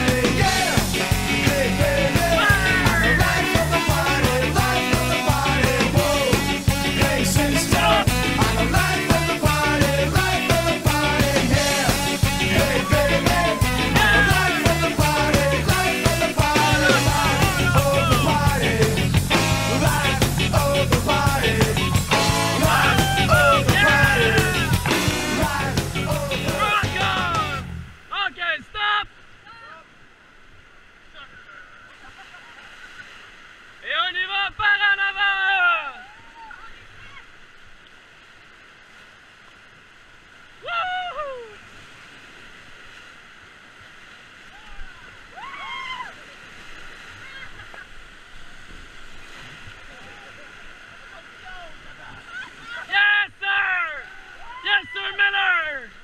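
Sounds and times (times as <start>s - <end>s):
drum beat: 0.0s - 27.6s
rock music: 0.0s - 27.9s
pitch-bending lead melody: 0.0s - 28.0s
whitewater rapids rushing: 0.0s - 29.9s, 44.3s - 56.0s
person shouting: 2.2s - 3.4s, 7.5s - 8.1s, 11.8s - 14.6s, 16.4s - 18.5s, 22.6s - 27.7s, 40.6s - 41.6s, 52.7s - 55.8s.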